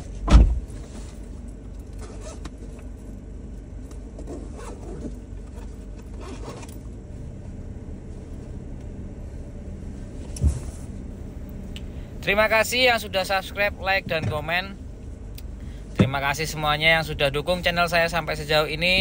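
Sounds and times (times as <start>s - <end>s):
low steady rumble inside car: 0.0s - 19.0s
dull thump: 0.2s - 0.7s.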